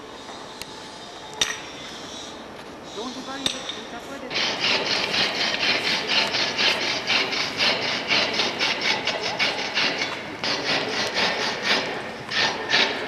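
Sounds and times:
rasping scraping strokes: 0:04.0 - 0:13.0.

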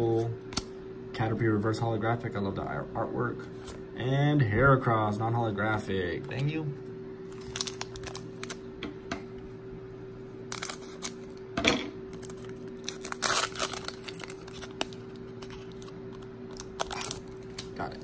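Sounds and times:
steady low hum: 0:00.0 - 0:18.0
foil wrapper crinkling: 0:07.3 - 0:08.6, 0:10.5 - 0:11.4, 0:12.1 - 0:18.0.

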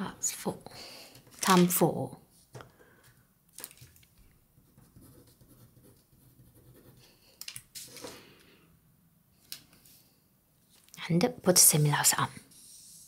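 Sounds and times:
pen scratching on paper: 0:04.6 - 0:07.2, 0:11.8 - 0:13.0.

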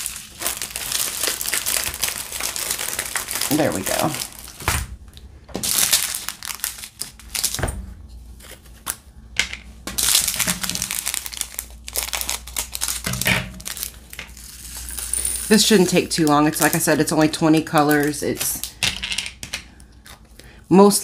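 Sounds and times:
scissors cutting plastic bag: 0:00.0 - 0:04.6, 0:10.0 - 0:18.7
plastic bags crinkling: 0:00.0 - 0:07.6, 0:09.8 - 0:18.8.

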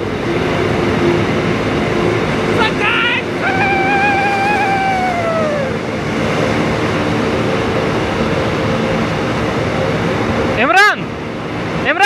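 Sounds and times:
motorcycle engine and road noise: 0:00.0 - 0:12.0
descending held tone: 0:02.4 - 0:07.7.

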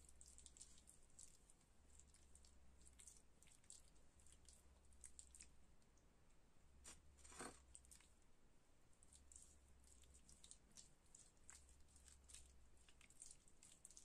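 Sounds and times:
wet paste squishing on skin: 0:09.1 - 0:14.0.

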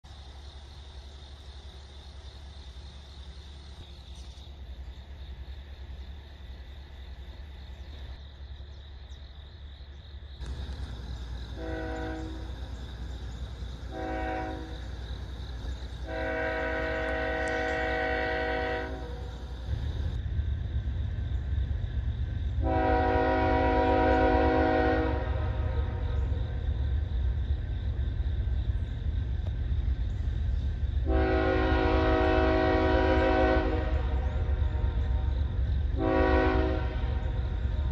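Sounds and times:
diesel locomotive rumble: 0:00.0 - 0:37.9
locomotive air horn blasts: 0:11.6 - 0:12.6, 0:13.9 - 0:14.9, 0:16.0 - 0:19.3, 0:22.6 - 0:26.1, 0:31.0 - 0:35.2, 0:35.9 - 0:37.4.

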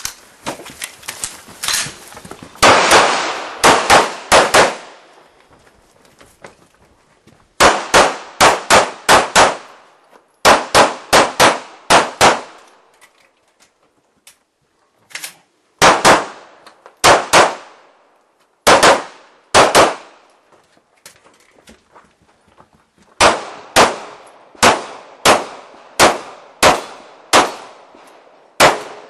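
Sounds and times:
handgun shots: 0:02.6 - 0:04.9, 0:23.2 - 0:27.8.

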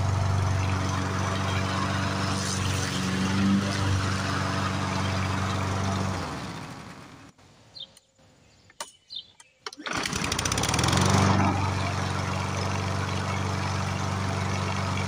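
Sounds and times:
lawn mower engine running: 0:00.0 - 0:07.3, 0:09.7 - 0:15.0
bird chirping: 0:07.6 - 0:09.7.

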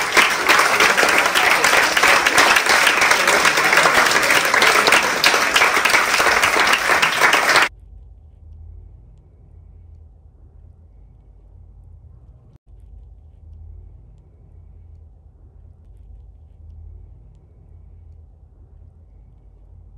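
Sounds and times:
audience applauding: 0:00.0 - 0:07.7
faint low hum: 0:00.0 - 0:19.9.

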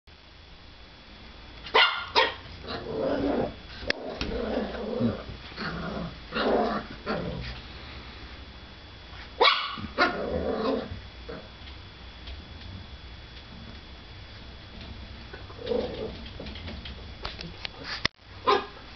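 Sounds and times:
puppy barking: 0:01.7 - 0:02.5, 0:09.4 - 0:10.2, 0:18.4 - 0:18.8
puppy growling: 0:02.5 - 0:07.6, 0:09.9 - 0:11.5, 0:15.3 - 0:17.0.

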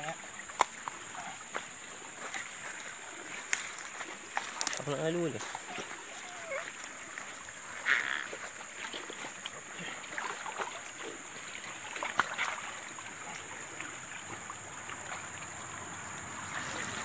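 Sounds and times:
water sloshing and splashing: 0:00.0 - 0:17.0
dip net sweeping through water: 0:05.5 - 0:17.0.

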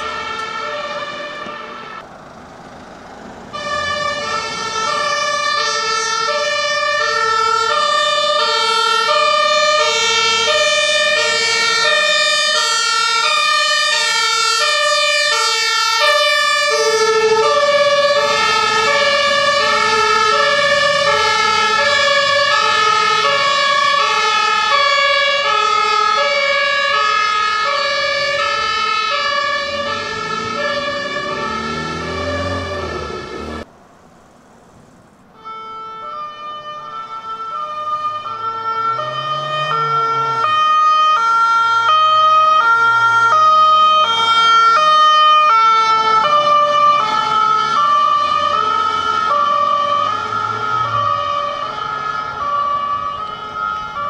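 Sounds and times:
two-tone fire truck siren: 0:00.0 - 0:33.7, 0:35.3 - 0:54.0
truck engine running: 0:01.5 - 0:07.0, 0:25.5 - 0:35.3.

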